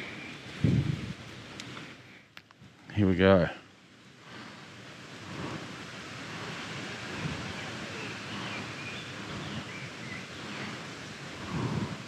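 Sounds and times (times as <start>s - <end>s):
wind on microphone: 0.0s - 1.5s, 4.3s - 12.0s.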